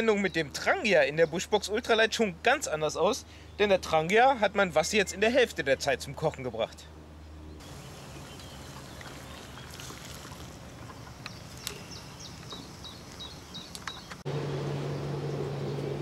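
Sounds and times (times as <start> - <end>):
bird chirping: 7.2 - 14.3.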